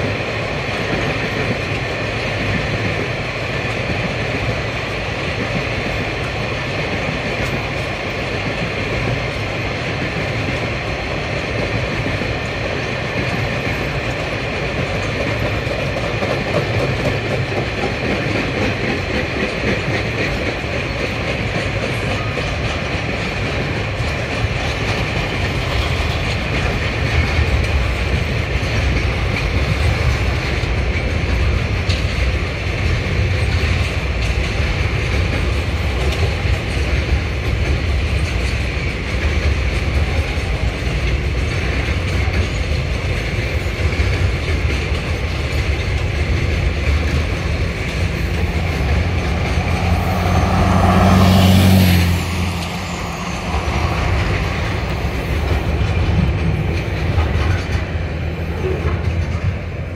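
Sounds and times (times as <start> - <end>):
wheels clacking over rail joints: 0.0 - 59.9
freight wagons rumbling past: 22.2 - 59.9
road vehicle engine passing: 47.5 - 55.3.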